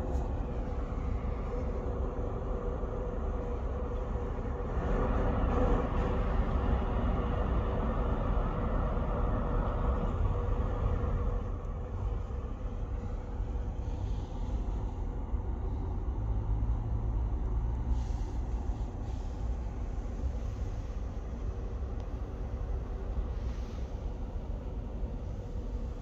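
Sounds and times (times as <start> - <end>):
ferry engines rumbling: 0.0 - 26.0.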